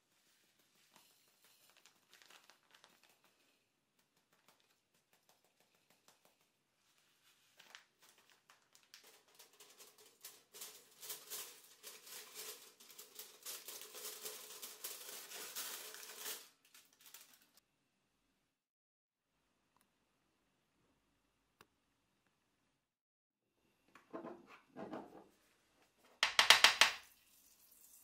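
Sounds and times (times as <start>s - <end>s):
aluminium foil crinkling: 0.0s - 17.6s
plastic packet crinkling: 1.0s - 5.9s, 7.5s - 17.6s.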